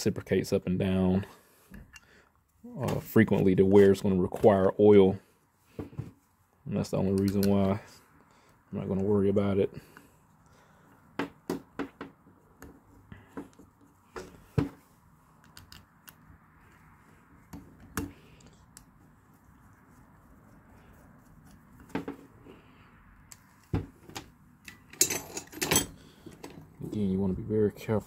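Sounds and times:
light clicks and metal taps: 7.0 - 7.7, 15.4 - 16.3.

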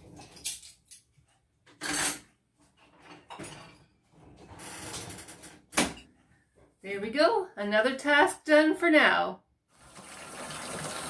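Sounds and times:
cutlery and dishes clattering: 0.0 - 1.1, 1.7 - 6.2.

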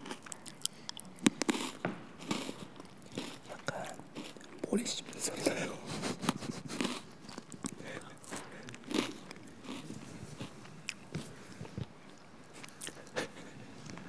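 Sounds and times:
crunchy snack chewing: 0.0 - 5.6, 6.2 - 13.2.

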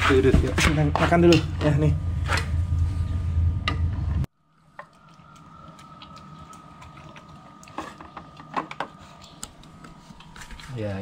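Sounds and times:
puppy chewing food: 4.8 - 10.3.

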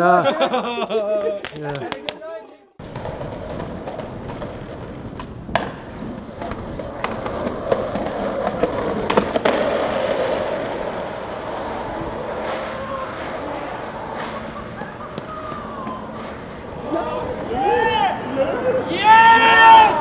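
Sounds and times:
skateboard clacks: 2.8 - 16.6
skateboard wheels rolling on asphalt: 2.8 - 20.0.

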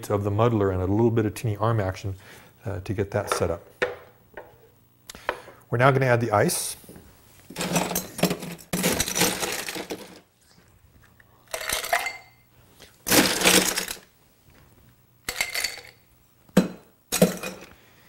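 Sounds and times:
ice cubes clinking in a glass: 11.5 - 12.4.

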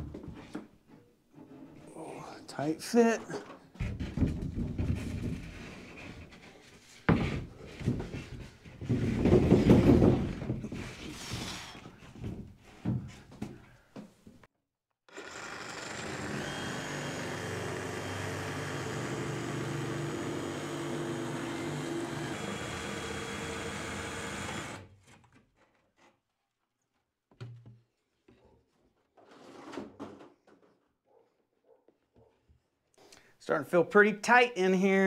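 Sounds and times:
screw gun motor running: 15.1 - 24.8.

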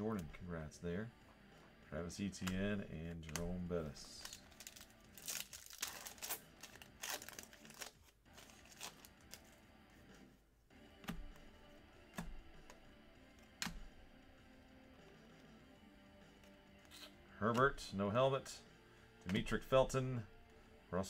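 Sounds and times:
plastic wrapper crinkling and tearing: 4.1 - 9.6.

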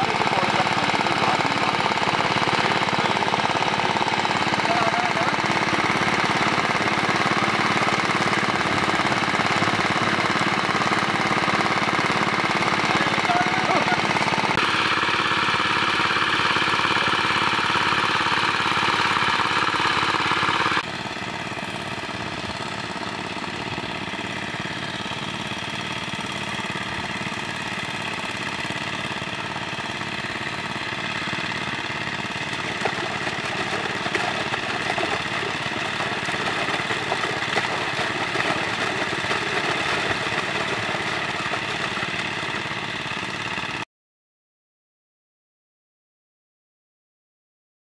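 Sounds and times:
water pump running: 0.0 - 43.8
water gushing through hoses: 32.1 - 42.6.

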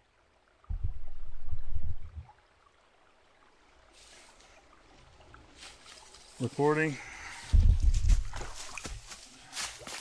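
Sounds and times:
wind buffeting microphone: 7.4 - 8.6.

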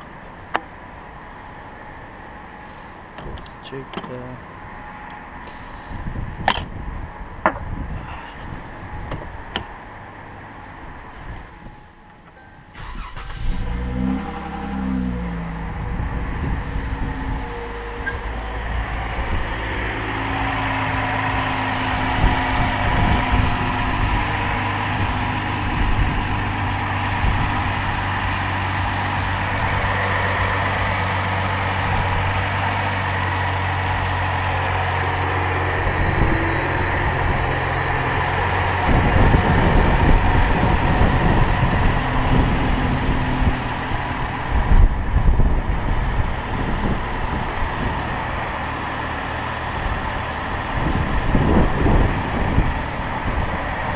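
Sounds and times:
car engine idling: 0.0 - 53.9
wind buffeting microphone: 5.8 - 9.8, 15.5 - 32.8, 33.4 - 48.5, 49.7 - 53.9.

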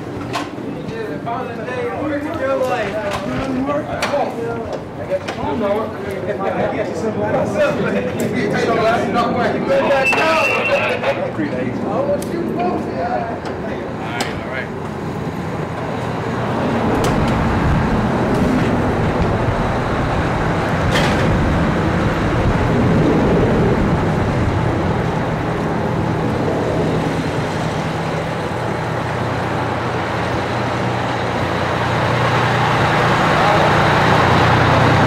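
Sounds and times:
heavy engine idling: 13.3 - 35.0.

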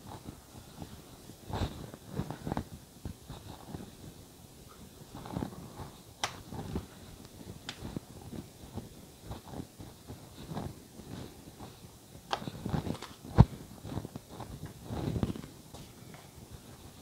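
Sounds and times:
hands patting dough: 4.9 - 17.0.

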